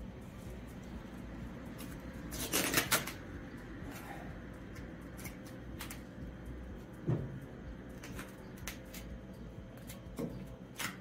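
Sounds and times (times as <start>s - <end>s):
vinyl film peeling rip: 1.8s - 3.3s.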